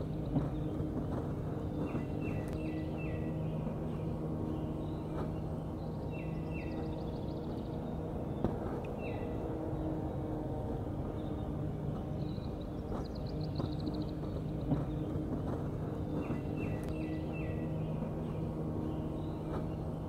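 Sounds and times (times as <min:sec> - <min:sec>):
birds calling: 0:00.0 - 0:10.3, 0:11.0 - 0:20.0
steady low hum: 0:00.0 - 0:20.0.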